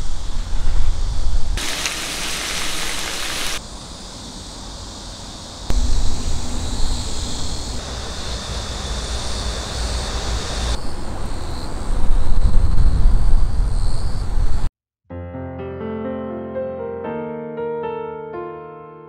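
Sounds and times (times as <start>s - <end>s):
wind buffeting microphone: 10.8s - 14.7s.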